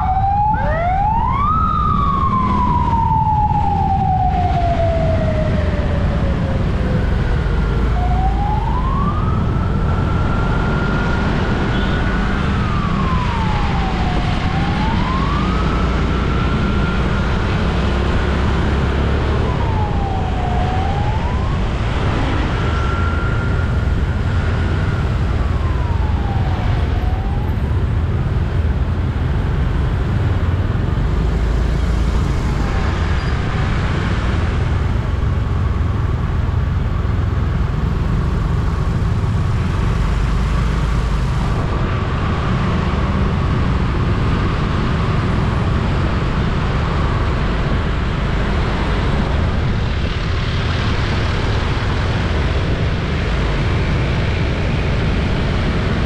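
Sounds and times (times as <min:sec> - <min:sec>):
siren wailing: 0:00.0 - 0:29.1
vehicle road and engine rumble: 0:00.0 - 0:56.0.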